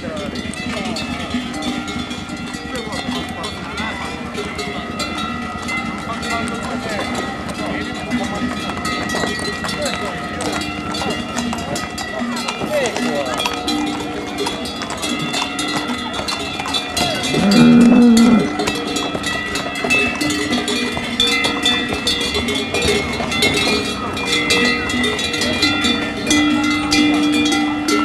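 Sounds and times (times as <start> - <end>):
ox bells clanking and ringing: 0.0 - 28.0
ox lowing: 17.2 - 18.7.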